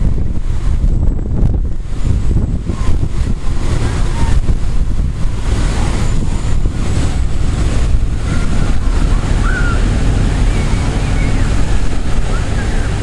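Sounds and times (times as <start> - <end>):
deep rumble: 0.0 - 13.0
wind buffeting microphone: 0.0 - 13.0
wind gusting through trees: 0.0 - 13.0.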